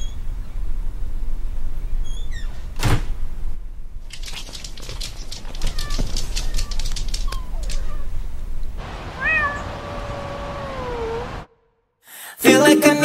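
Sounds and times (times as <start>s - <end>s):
people running on wooden floor: 4.2s - 7.9s
long cat meow: 9.2s - 11.4s.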